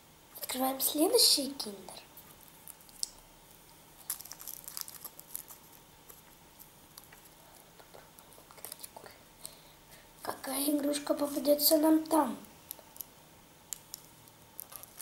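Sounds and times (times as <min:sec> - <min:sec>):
foil wrapper crinkling: 0:02.3 - 0:09.0, 0:13.7 - 0:15.0.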